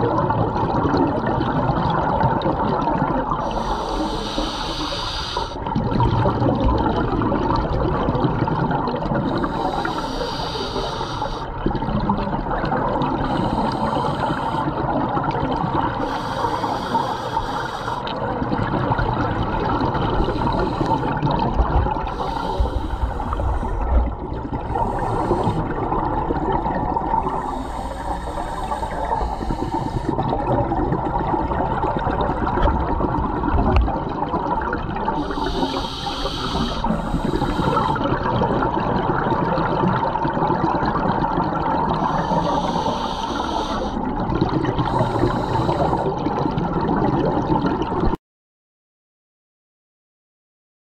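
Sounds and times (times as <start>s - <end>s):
exhaled bubbles rushing: 0.0s - 4.1s, 5.6s - 10.1s, 11.5s - 48.2s
steady bubbling water: 0.0s - 48.2s
diver breathing through regulator: 3.4s - 5.7s, 9.3s - 11.5s, 13.2s - 14.9s, 16.0s - 18.2s, 19.8s - 25.9s, 27.2s - 30.4s, 35.1s - 38.2s, 41.9s - 44.1s, 44.7s - 46.2s.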